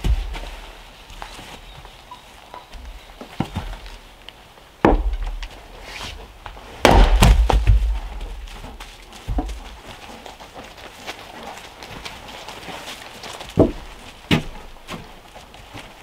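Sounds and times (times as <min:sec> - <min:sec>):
knocks of wood: 0:04.8 - 0:05.5, 0:06.8 - 0:08.5, 0:13.5 - 0:15.1
axe splitting firewood: 0:04.8 - 0:09.8, 0:13.5 - 0:15.2.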